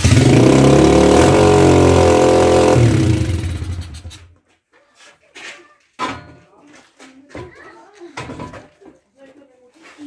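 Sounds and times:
dirt bike engine running fast: 0.0 - 4.1.

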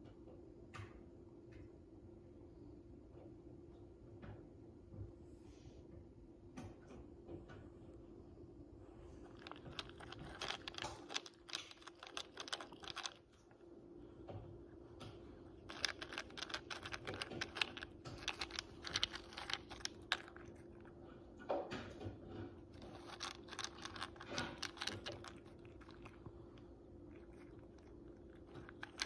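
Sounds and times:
cat crunching crackers: 9.2 - 29.0.

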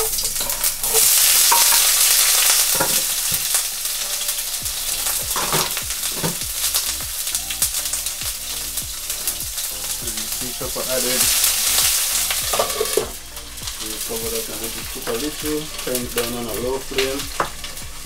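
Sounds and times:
oil crackles: 0.0 - 18.0
pepper sizzling in hot oil: 0.0 - 18.0.

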